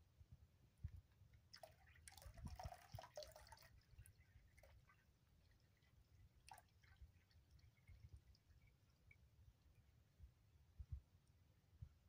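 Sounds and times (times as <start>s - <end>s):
water splashing and dripping: 1.4s - 9.7s.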